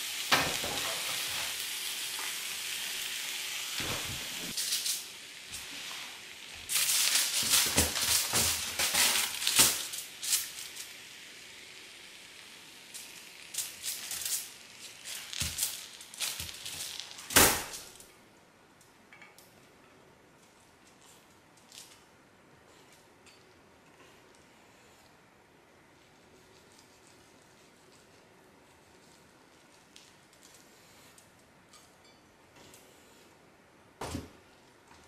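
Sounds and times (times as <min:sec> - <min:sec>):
crackling and scraping in pan: 0:00.0 - 0:17.9
omelette sizzling in pan: 0:00.0 - 0:18.0.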